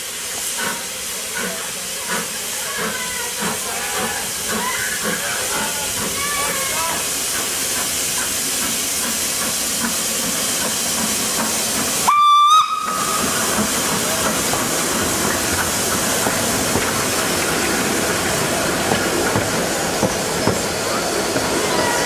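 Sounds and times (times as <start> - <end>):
steam hissing: 0.0 - 22.0
steam whistle blast: 12.0 - 13.3.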